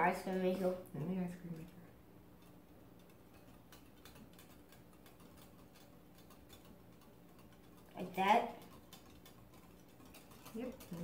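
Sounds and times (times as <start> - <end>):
spoon ticking on glass bowl: 2.4 - 11.0.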